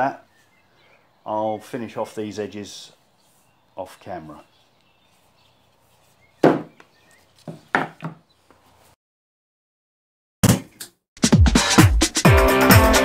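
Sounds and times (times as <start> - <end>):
wooden board knocks: 6.4 - 6.8, 7.5 - 8.2
electronic music: 11.2 - 13.0.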